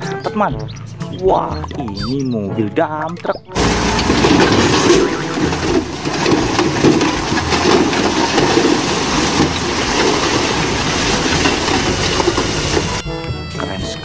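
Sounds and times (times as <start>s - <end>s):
rocks tumbling and crashing: 3.6s - 13.0s
truck engine running: 3.6s - 13.0s.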